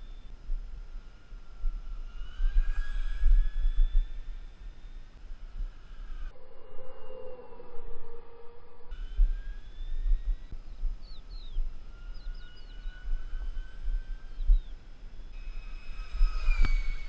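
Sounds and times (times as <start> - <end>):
bird chirps: 0.0 - 5.1, 8.9 - 17.0
wind buffeting microphone: 0.0 - 6.3, 8.9 - 17.0
model jet whining: 0.8 - 6.4, 11.7 - 17.0.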